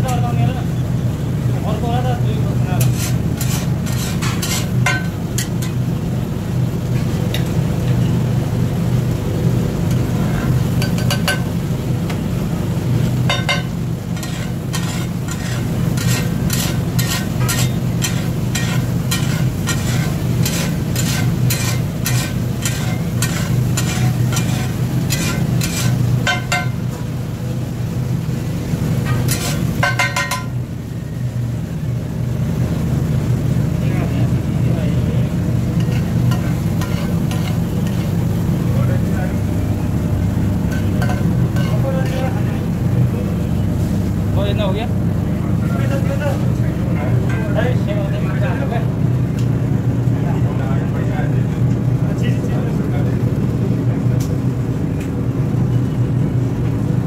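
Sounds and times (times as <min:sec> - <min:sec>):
steady low hum: 0:00.0 - 0:57.0
food sizzling on hot plate: 0:02.5 - 0:31.0, 0:35.3 - 0:39.1, 0:40.5 - 0:42.7
spatula scraping and clacking on griddle: 0:02.6 - 0:06.0, 0:06.8 - 0:08.2, 0:09.9 - 0:12.2, 0:13.0 - 0:27.1, 0:29.0 - 0:30.6, 0:35.7 - 0:38.3, 0:40.6 - 0:42.4.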